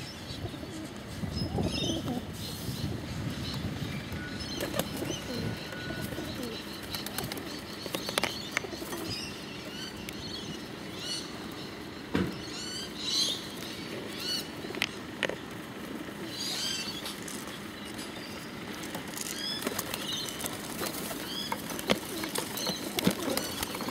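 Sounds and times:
pigeons cooing: 0.0s - 23.9s
wings flapping: 4.6s - 9.2s, 18.6s - 23.9s.

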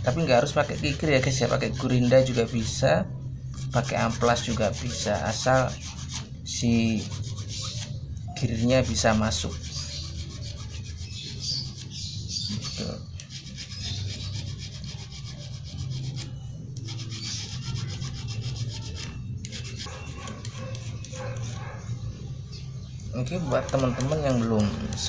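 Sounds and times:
hand file rasping metal: 0.0s - 2.9s, 3.5s - 8.0s, 8.6s - 21.7s, 23.3s - 25.0s.

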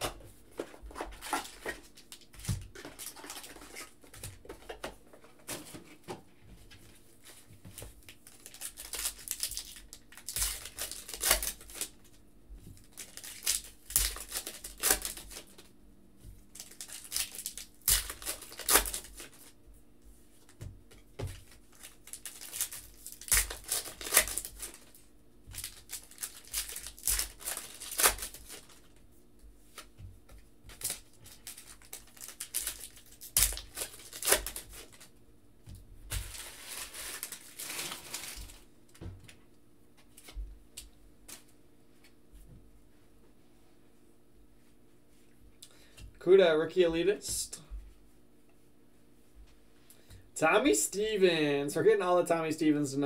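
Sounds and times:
cards being handled: 0.0s - 5.9s, 20.4s - 29.0s, 29.7s - 35.1s
foil wrappers crinkling and tearing: 0.9s - 4.4s, 8.0s - 12.2s, 12.8s - 15.7s, 16.5s - 19.6s, 21.2s - 29.0s, 30.7s - 35.1s, 36.1s - 38.7s.

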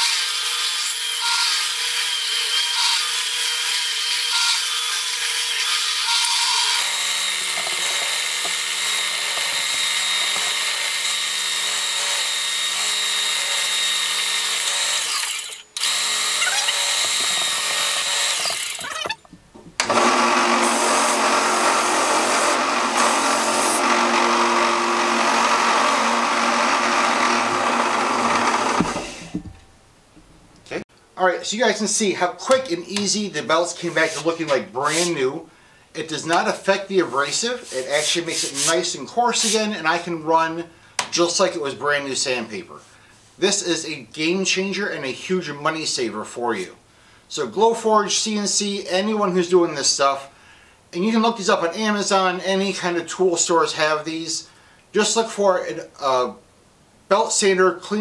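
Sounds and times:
belt sanders running: 6.1s - 18.8s, 19.8s - 29.4s
cleaning stick rubbing sanding belt: 33.6s - 35.2s, 37.2s - 39.7s.

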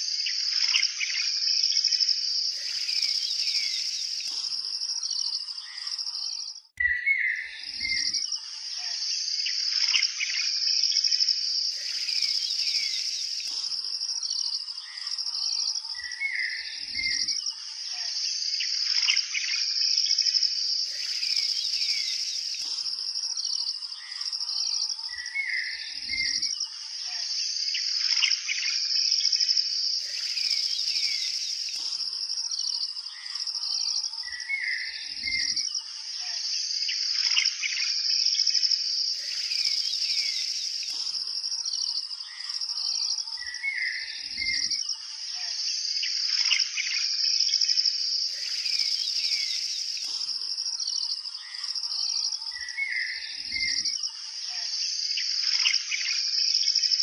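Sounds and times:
high-pitched insect drone: 0.0s - 6.4s, 7.5s - 57.0s
birds chirping: 2.5s - 10.5s, 11.5s - 18.0s, 20.8s - 26.4s, 29.9s - 35.6s, 39.0s - 44.7s, 48.3s - 53.8s.

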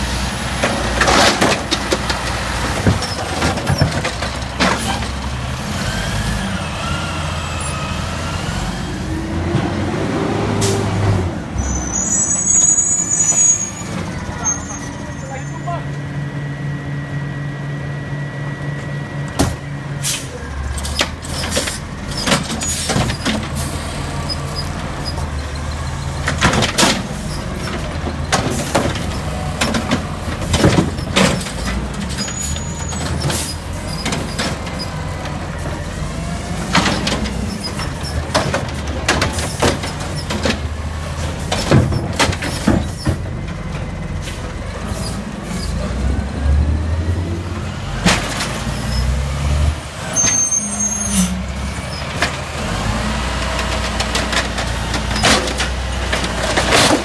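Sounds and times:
plastic carts knocking and clattering: 27.7s - 31.9s, 41.4s - 43.6s, 53.8s - 57.0s.

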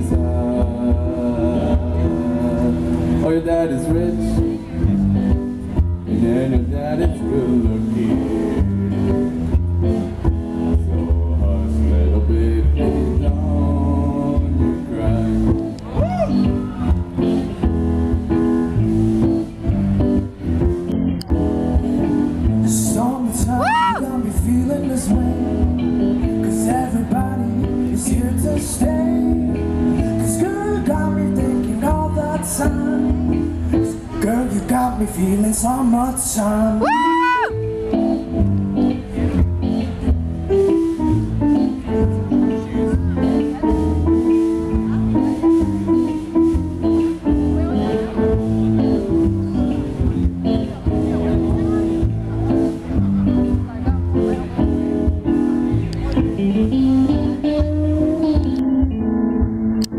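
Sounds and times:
electric guitar melody: 0.0s - 59.9s
keyboard playing: 37.0s - 59.9s.

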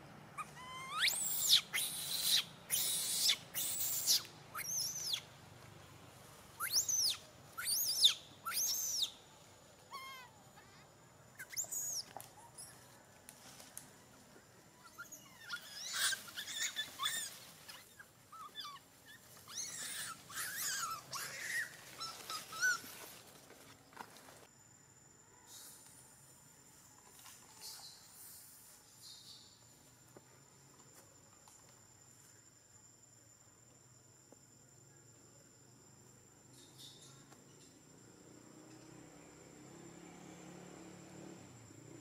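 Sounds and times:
macaque screaming: 0.4s - 5.2s, 9.9s - 10.8s, 14.9s - 17.8s, 18.4s - 22.9s.

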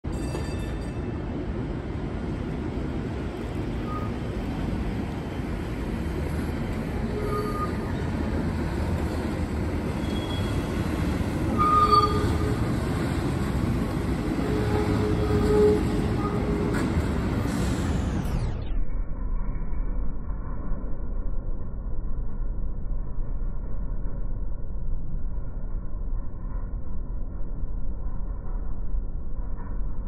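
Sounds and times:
streetcar rolling on rails: 0.1s - 30.0s
wheel squeals: 7.0s - 8.1s, 9.9s - 10.8s, 11.4s - 13.1s, 14.4s - 17.0s.

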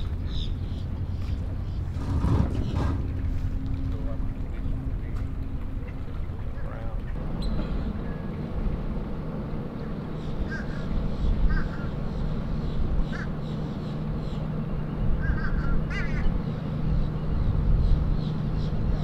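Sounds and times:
low hum and rumble: 0.0s - 19.0s
short bird calls: 15.1s - 16.5s.

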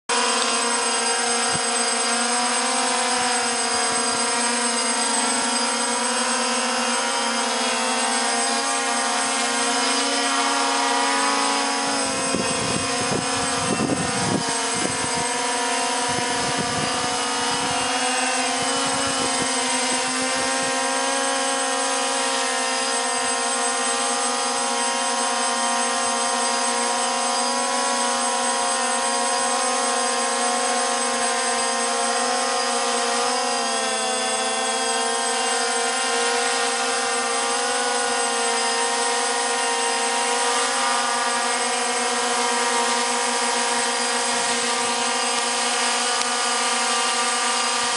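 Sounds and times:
drone propellers buzzing whine: 0.1s - 47.9s.

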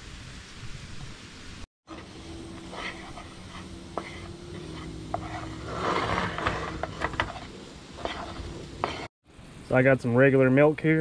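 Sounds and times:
grease sizzling in a skillet: 1.9s - 9.1s
spatula scraping and tapping pan: 2.6s - 9.1s.

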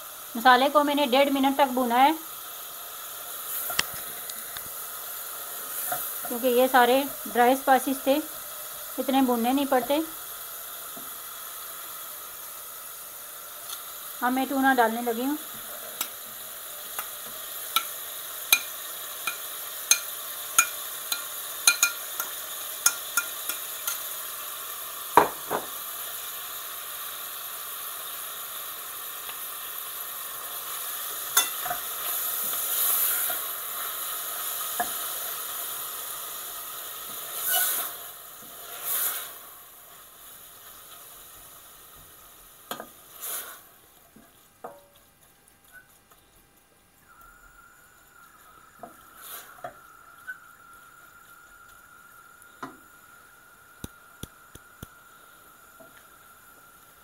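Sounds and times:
food sizzling in hot oil: 0.0s - 57.0s
spoon clinking on a plate: 18.5s - 24.0s, 31.4s - 31.8s.

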